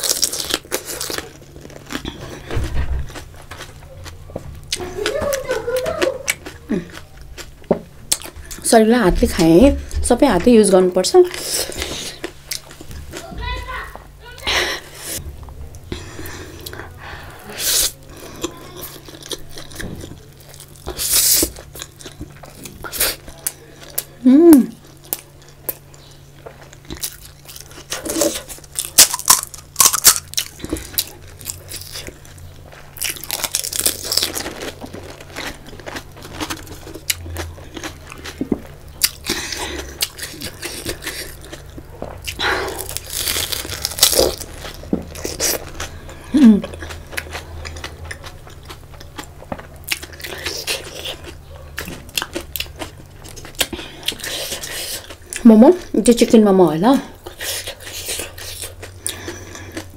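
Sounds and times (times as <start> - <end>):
crisp shells crunching: 0.0 - 4.2, 26.6 - 55.3
wet chewing: 0.0 - 10.0, 11.2 - 13.3, 24.8 - 56.0, 57.1 - 59.9
person humming: 24.2 - 24.8, 46.3 - 46.7.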